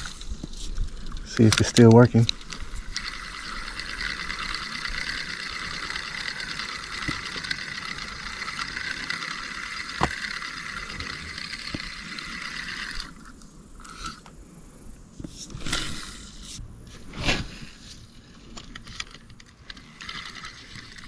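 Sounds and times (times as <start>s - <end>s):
reel click: 0.0s - 14.4s
fishing reel gears whirring: 0.0s - 21.0s.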